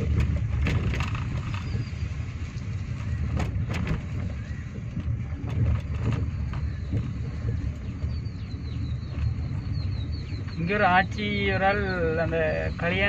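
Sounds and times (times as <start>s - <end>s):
car engine and tyres rumbling: 0.0s - 13.0s
bird chirping: 5.8s - 13.0s.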